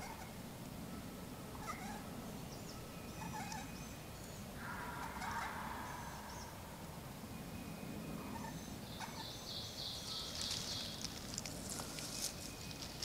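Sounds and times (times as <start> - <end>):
songbirds chirping: 0.0 - 13.0
turkey gobbling: 4.6 - 6.6.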